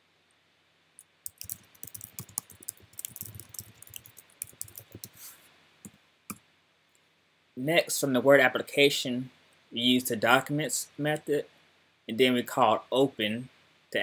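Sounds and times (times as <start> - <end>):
typing on computer keyboard: 1.2 - 5.2.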